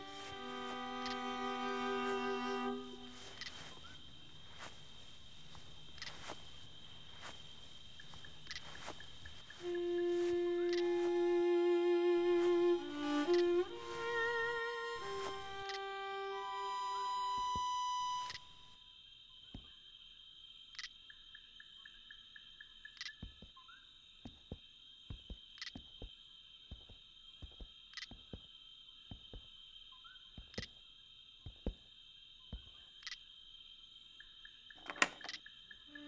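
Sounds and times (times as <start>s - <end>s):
footsteps on a wooden platform: 0.0s - 11.6s, 12.2s - 15.8s, 23.2s - 23.6s, 24.2s - 29.7s, 30.4s - 30.7s, 31.4s - 31.9s
insect chirp: 0.0s - 36.0s
insect drone: 0.0s - 36.0s.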